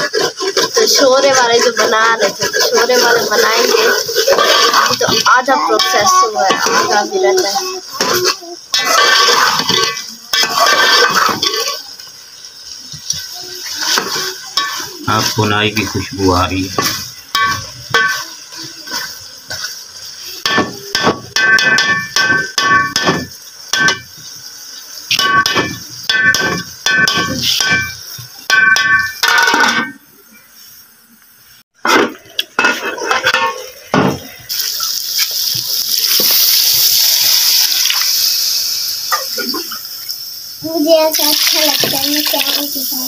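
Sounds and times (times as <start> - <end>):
metal spatula scraping pot: 0.0 - 12.0, 13.1 - 19.8, 32.6 - 33.8
water hissing in hot pot: 0.0 - 43.0.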